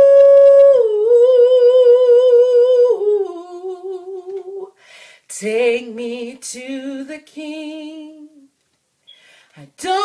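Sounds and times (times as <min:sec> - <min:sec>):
woman singing long wordless note: 0:00.0 - 0:04.7.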